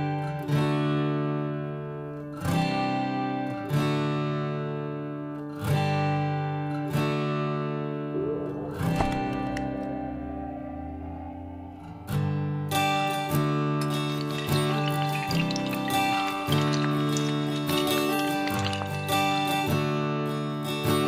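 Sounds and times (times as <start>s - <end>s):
acoustic guitar strumming chords: 5.9s - 21.0s
rush of noise: 8.1s - 13.2s.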